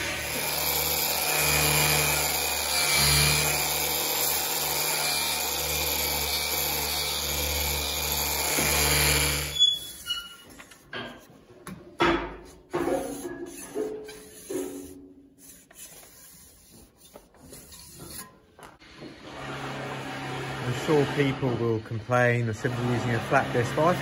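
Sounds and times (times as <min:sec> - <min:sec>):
disc sander grinding metal: 0:00.0 - 0:11.1, 0:12.8 - 0:18.3, 0:20.0 - 0:24.0.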